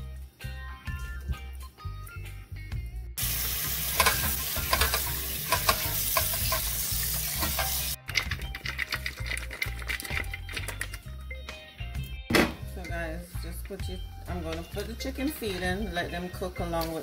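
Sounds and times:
background music: 0:00.0 - 0:17.0
tap water running into a pot: 0:03.2 - 0:08.0.

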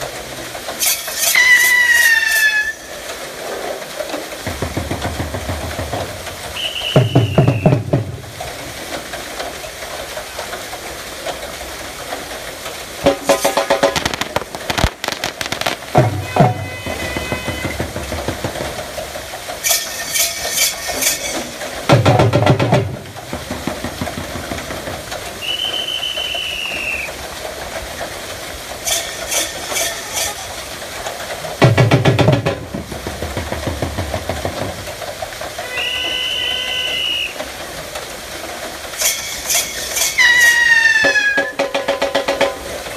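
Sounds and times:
steady background noise: 0:00.0 - 0:42.9
water wheel rattling clatter: 0:00.0 - 0:42.9
high whistle-like tone: 0:06.6 - 0:07.8, 0:25.4 - 0:27.1, 0:35.6 - 0:37.4.

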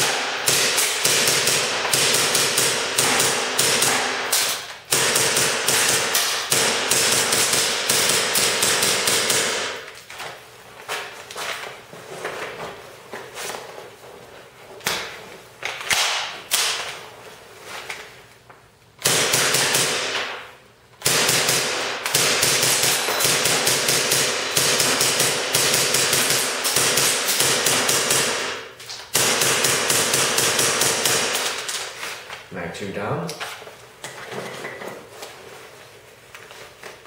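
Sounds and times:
airsoft gun firing: 0:00.0 - 0:09.9, 0:19.0 - 0:20.4, 0:21.0 - 0:31.7.

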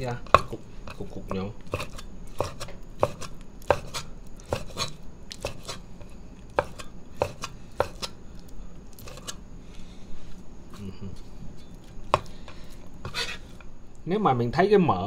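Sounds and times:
cleaver chopping on wooden board: 0:00.3 - 0:01.0, 0:01.7 - 0:05.8, 0:06.5 - 0:08.2, 0:12.1 - 0:12.3.

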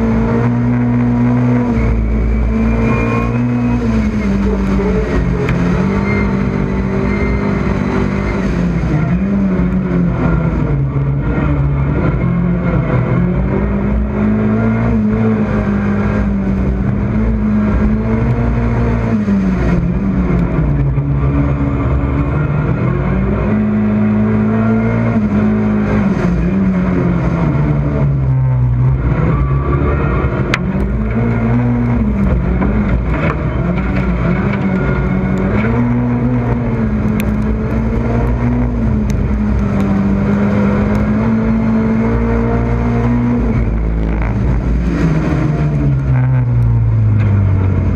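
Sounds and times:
racing car engine revving: 0:00.0 - 0:47.9.

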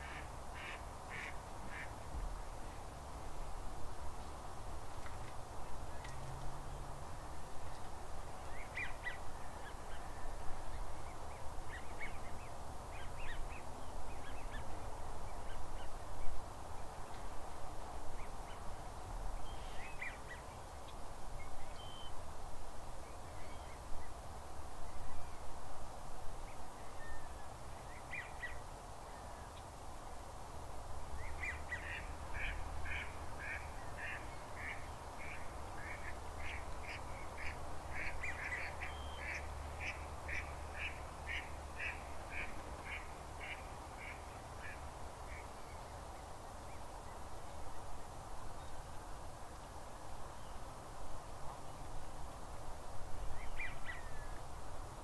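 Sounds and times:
ducks calling: 0:00.0 - 0:01.9.

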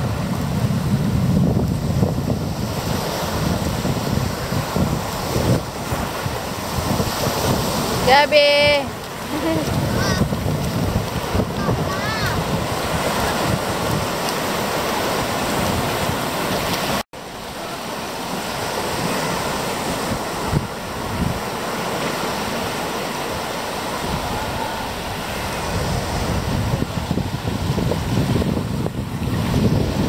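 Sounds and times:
wind buffeting microphone: 0:00.0 - 0:17.0, 0:18.3 - 0:30.0
sea waves washing on beach: 0:00.0 - 0:30.0.

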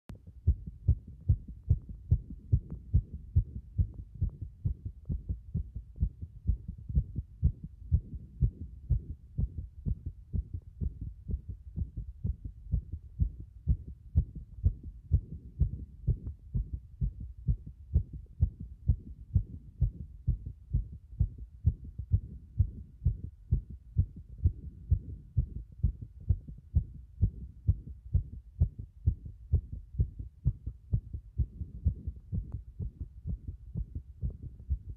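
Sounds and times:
fast heartbeat thuds: 0:00.1 - 0:34.9.

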